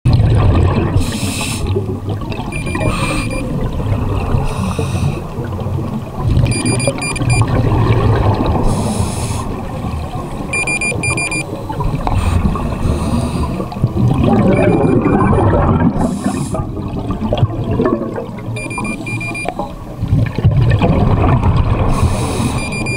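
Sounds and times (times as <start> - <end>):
exhaled bubbles underwater: 0.1 - 22.9
dive computer beeps: 2.3 - 3.8, 6.4 - 7.7, 10.4 - 11.6, 14.2 - 16.2, 18.5 - 19.8, 22.4 - 22.9.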